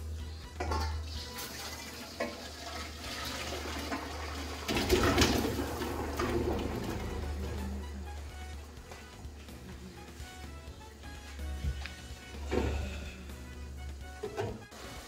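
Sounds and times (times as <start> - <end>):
water and potatoes poured into colander: 1.0 - 7.6.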